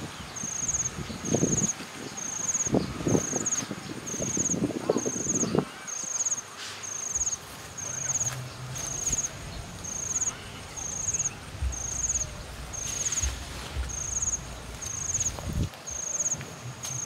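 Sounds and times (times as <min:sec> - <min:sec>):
insect buzzy chirps: 0:00.0 - 0:17.0
faint rustles: 0:06.4 - 0:17.0
soft low thumps: 0:11.5 - 0:15.8.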